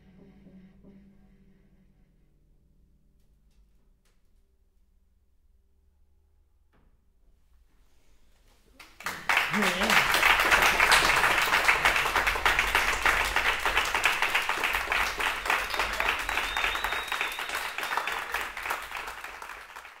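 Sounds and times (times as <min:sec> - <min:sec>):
audience applauding: 0:08.7 - 0:20.0.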